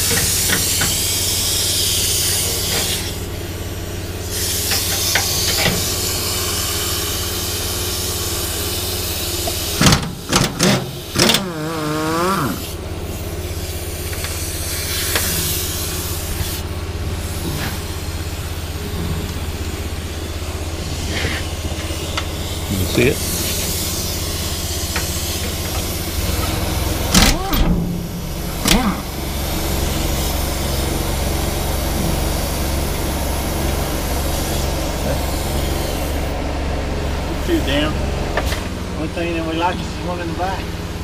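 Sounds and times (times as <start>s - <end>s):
air hissing: 0.0s - 36.5s
low machine hum: 0.0s - 41.0s.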